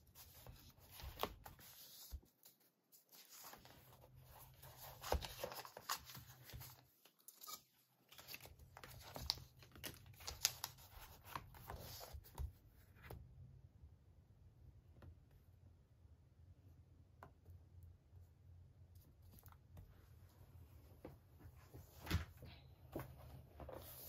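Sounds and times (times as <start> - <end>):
paper rustling and crinkling: 0.1 - 12.5.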